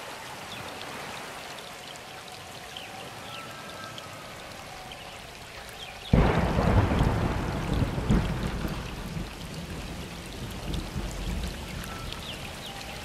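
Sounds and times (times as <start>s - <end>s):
steady rain: 0.0s - 13.0s
thunderclap rumbling: 6.1s - 11.8s.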